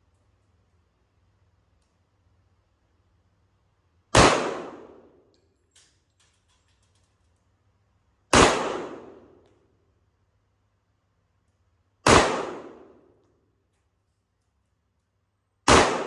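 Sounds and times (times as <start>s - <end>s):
faint clicks: 1.7s - 2.1s
pistol shots: 4.1s - 5.2s, 8.3s - 9.4s, 12.0s - 13.2s, 15.6s - 16.0s.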